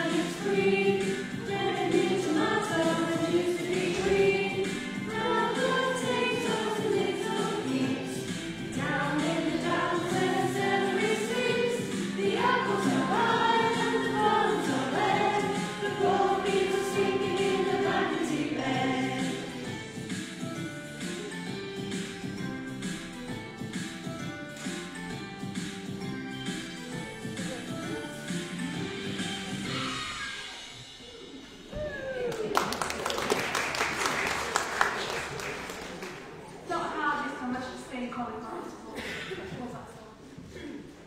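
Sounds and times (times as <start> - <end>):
congregation singing: 0.0 - 19.7
musical accompaniment: 0.0 - 31.7.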